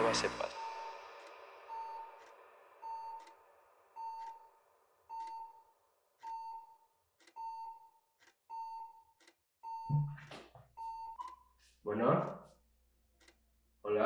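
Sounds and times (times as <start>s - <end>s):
cordless telephone ringing beeps: 7.4s - 10.1s, 10.8s - 11.3s.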